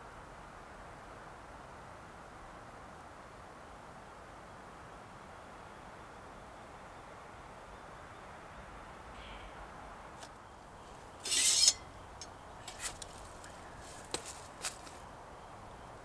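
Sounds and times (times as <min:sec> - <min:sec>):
faint background hiss: 0:00.0 - 0:16.0
scraping rustle: 0:10.8 - 0:11.9, 0:12.6 - 0:15.1.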